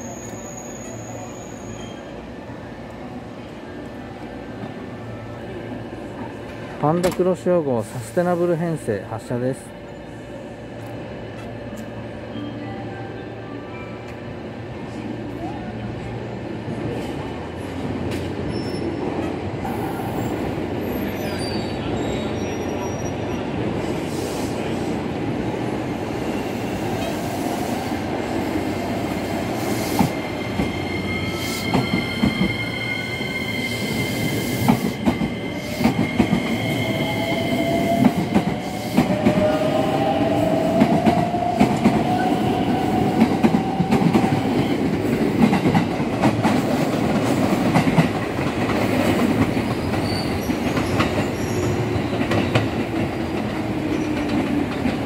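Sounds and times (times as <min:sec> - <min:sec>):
train rumble: 0:14.0 - 0:55.0.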